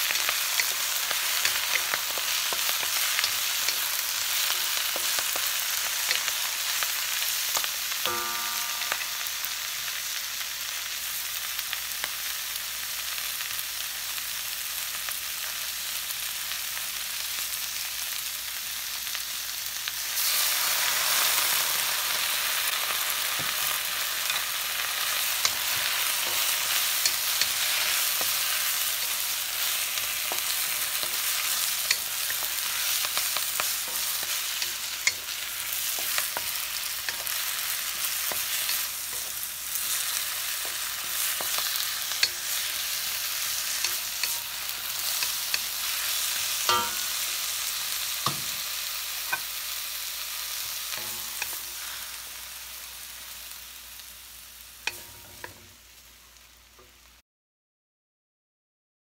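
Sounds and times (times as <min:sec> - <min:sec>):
vegetables sizzling in a wok: 0:00.0 - 0:57.2
spatula knocking and scraping wok: 0:07.6 - 0:09.4, 0:23.1 - 0:49.6, 0:50.6 - 0:51.9, 0:54.9 - 0:55.7.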